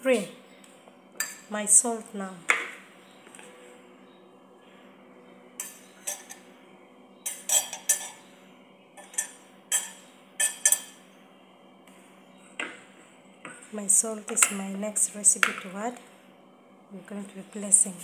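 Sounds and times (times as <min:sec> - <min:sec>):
spoon clinking against bowls: 0:05.6 - 0:06.5, 0:07.2 - 0:08.2, 0:09.0 - 0:11.0.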